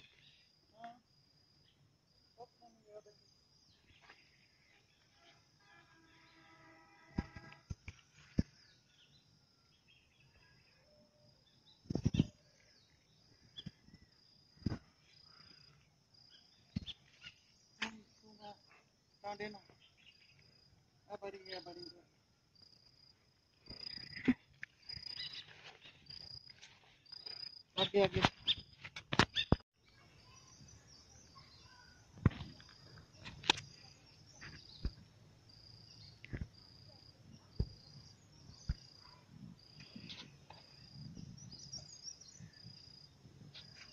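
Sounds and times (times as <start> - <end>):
crickets chirring: 0.0 - 43.9
birds chirping: 23.6 - 43.9.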